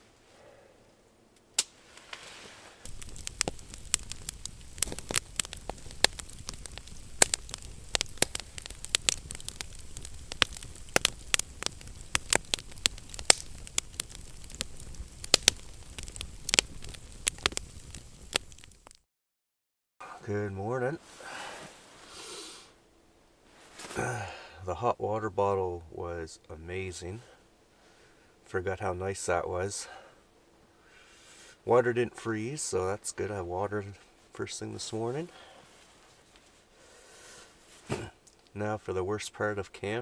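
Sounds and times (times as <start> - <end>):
campfire crackling and popping: 1.4 - 2.2, 2.8 - 19.0.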